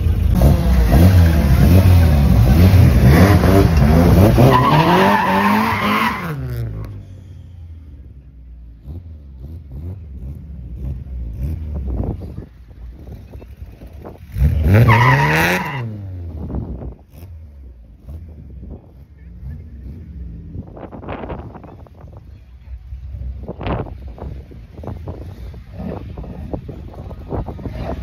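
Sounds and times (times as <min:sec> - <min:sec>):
drag car engine revving: 0:00.0 - 0:07.0, 0:08.8 - 0:22.1
tyres squealing: 0:04.2 - 0:06.4.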